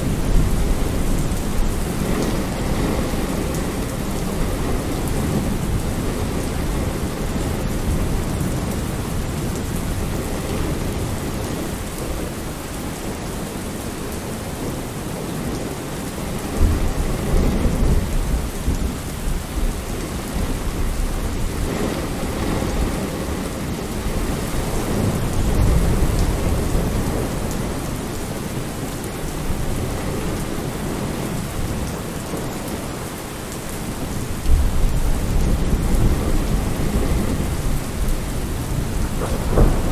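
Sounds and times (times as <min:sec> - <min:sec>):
steady rain: 0:00.0 - 0:39.9
thunder rolling: 0:34.4 - 0:39.9.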